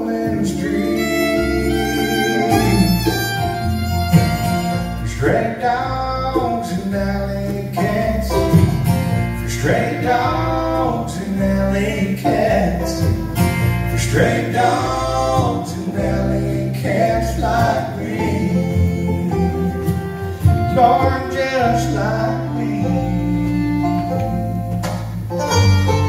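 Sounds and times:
fiddle: 0.0s - 6.5s, 12.7s - 26.0s
acoustic guitar: 0.0s - 26.0s
mandolin: 0.0s - 26.0s
upright bass: 0.0s - 26.0s.

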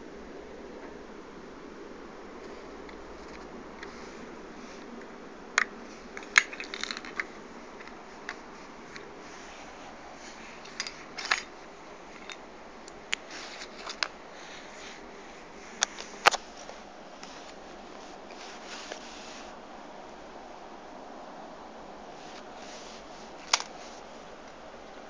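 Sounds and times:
steady low hiss: 0.0s - 25.0s
toy car clattering plastic clicks: 5.6s - 8.0s.

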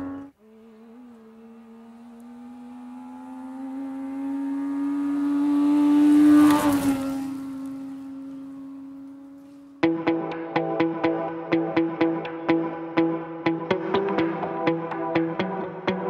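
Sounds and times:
rally car engine at high revs: 0.0s - 9.9s.

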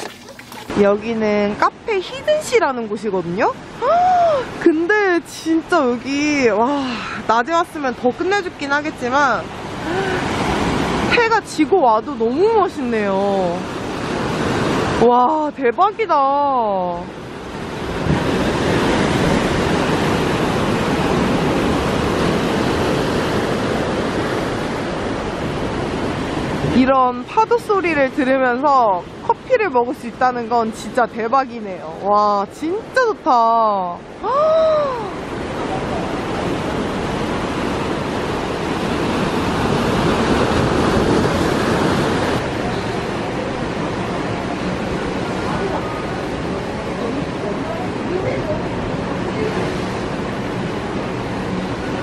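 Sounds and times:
sea waves breaking on rocks: 17.1s - 27.0s, 35.2s - 52.0s.

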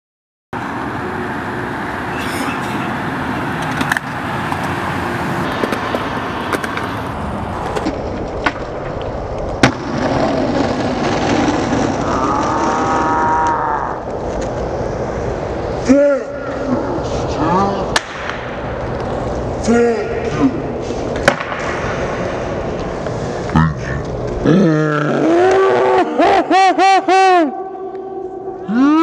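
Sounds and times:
skateboard wheels rolling on concrete: 0.6s - 19.6s, 20.6s - 26.0s
skateboard clacks: 3.4s - 12.8s, 21.1s - 23.1s.

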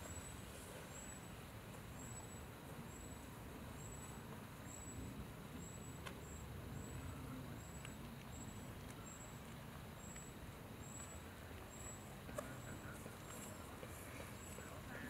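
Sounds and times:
low outdoor rumble: 0.0s - 15.0s
faint clicks: 7.6s - 10.3s.

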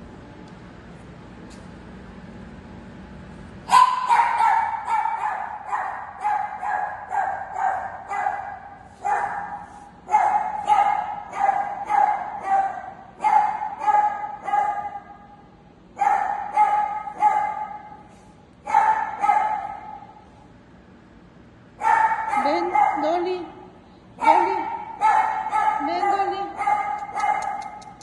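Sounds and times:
puppy yapping: 3.7s - 15.1s, 24.2s - 28.0s.

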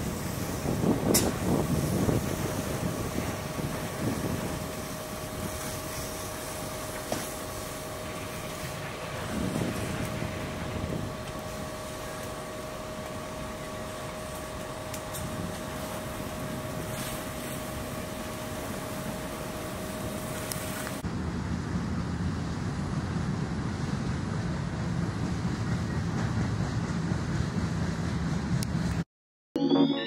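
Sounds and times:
hose streams spraying: 0.0s - 10.3s, 14.3s - 21.0s
fire engine pump rumbling: 0.0s - 28.9s.

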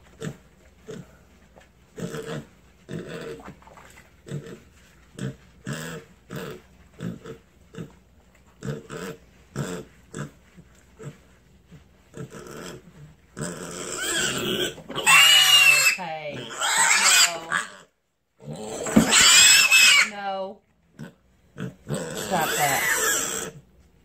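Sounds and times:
pig grunting: 12.1s - 20.2s, 21.0s - 23.6s.

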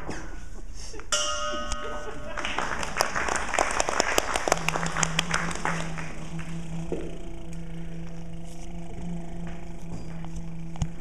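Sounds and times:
low steady tone: 1.1s - 2.8s, 4.6s - 11.0s
held chord of steady tones: 1.2s - 11.0s
audience applauding: 2.3s - 6.8s.

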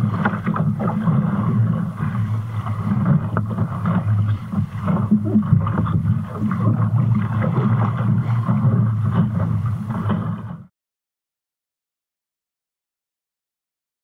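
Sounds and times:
water splashing against hull: 0.0s - 10.7s
wind buffeting microphone: 0.0s - 10.7s.

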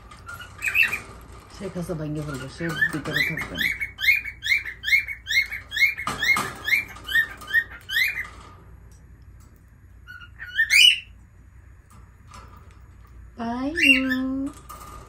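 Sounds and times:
lovebird chirping: 0.2s - 1.1s, 2.2s - 8.4s, 10.0s - 11.2s, 13.4s - 14.5s
bird squawks rising: 10.0s - 11.2s.

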